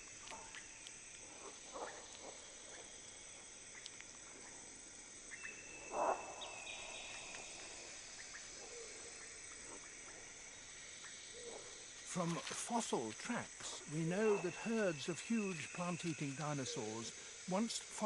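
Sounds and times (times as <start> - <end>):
insects chirping: 0.0 - 18.0
faint clicks: 3.7 - 4.2.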